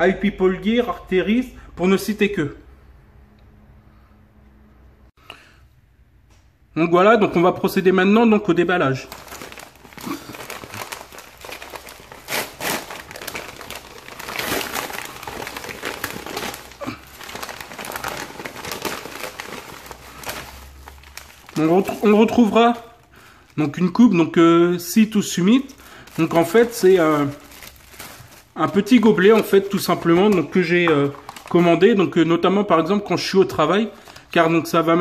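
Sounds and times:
mailer tearing and crinkling: 9.0s - 22.8s, 26.1s - 31.7s.

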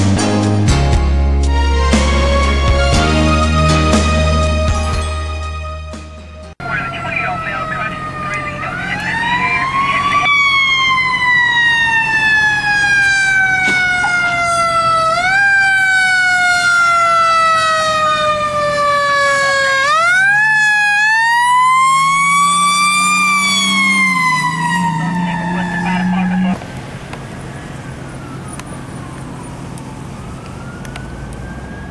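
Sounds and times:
fire engine siren wailing: 6.5s - 31.9s.

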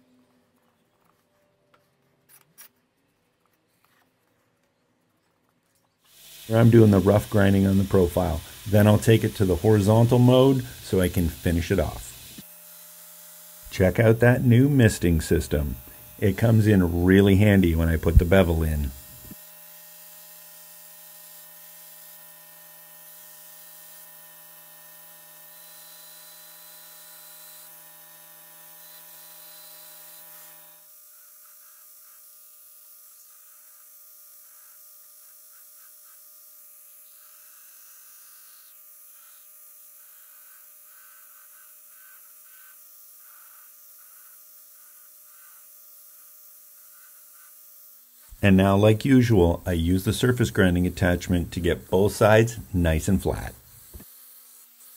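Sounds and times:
belt grinder motor whine: 6.1s - 46.0s.

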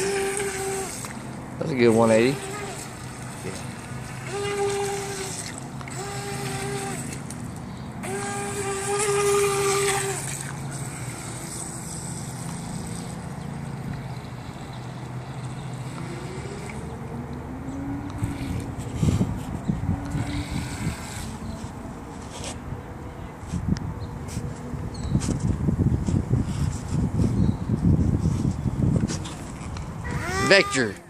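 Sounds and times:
electric motor whining: 0.0s - 21.7s
water and wind hiss: 0.0s - 22.4s, 23.6s - 31.0s.

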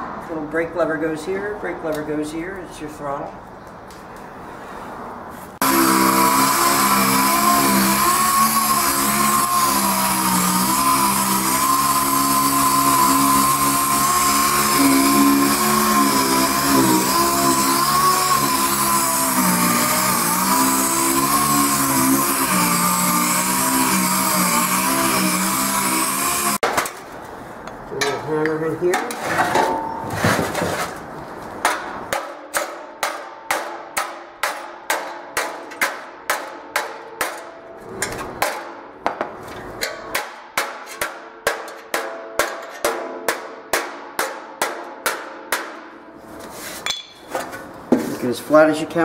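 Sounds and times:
hammer striking metal panel: 31.6s - 45.9s.

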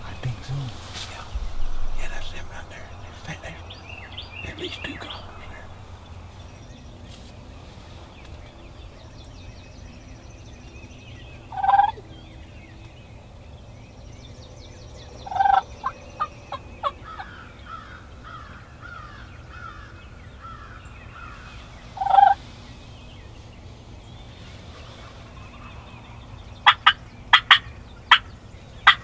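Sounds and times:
turkeys gobbling: 11.5s - 12.0s, 15.3s - 17.4s, 22.0s - 22.4s, 26.6s - 29.0s.

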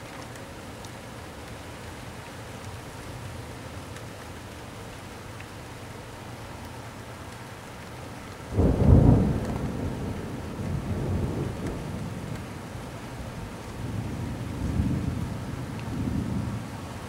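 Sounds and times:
rain hiss: 0.0s - 17.0s
thunder clap and rumble: 8.6s - 12.8s, 13.6s - 16.6s.

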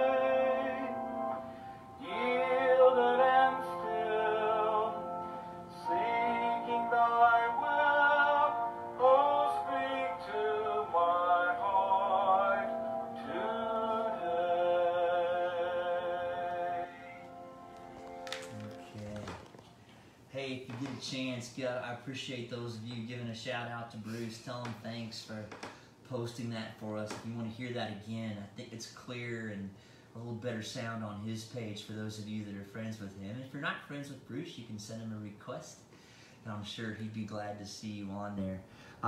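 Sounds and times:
church organ playing a hymn: 0.0s - 19.3s.

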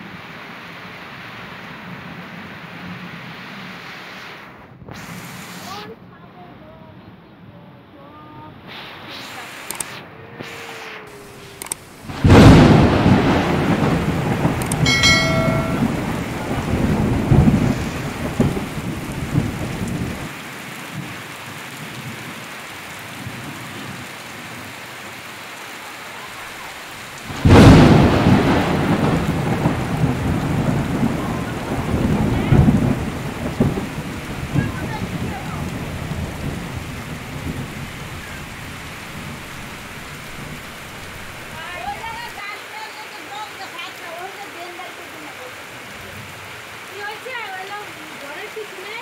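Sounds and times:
heavy rain pouring: 0.0s - 7.0s, 7.8s - 49.0s
thunderclaps: 10.4s - 22.4s, 27.1s - 42.4s.

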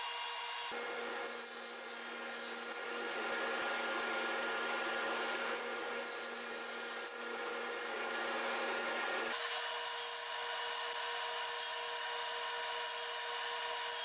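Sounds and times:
table saw cutting wood: 0.0s - 14.0s.

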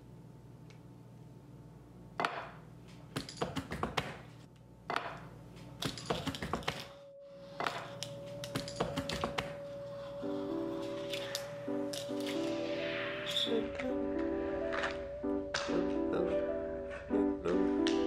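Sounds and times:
held musical note: 7.0s - 18.0s.

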